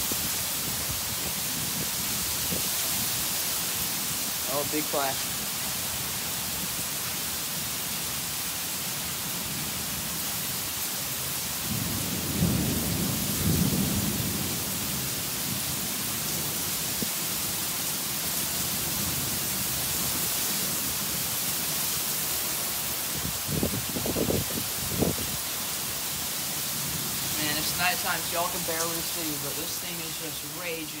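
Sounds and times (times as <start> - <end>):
heavy rain falling: 0.0 - 31.0
low rumble of thunder: 11.6 - 17.3.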